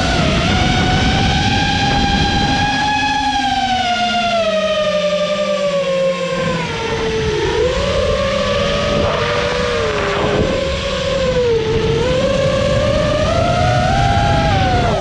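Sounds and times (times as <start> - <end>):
drone motors whining: 0.0 - 15.0
rushing air noise: 6.4 - 15.0.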